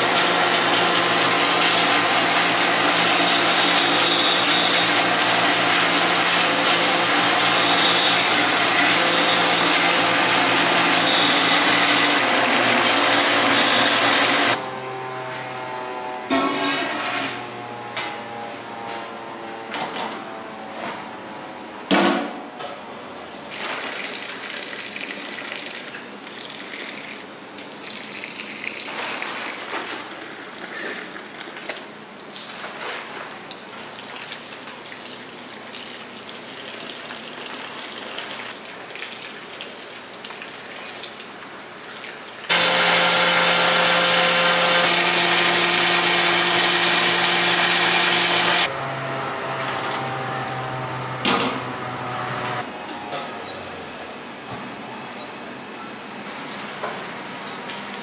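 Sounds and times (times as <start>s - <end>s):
machine motor humming: 42.5s - 52.9s.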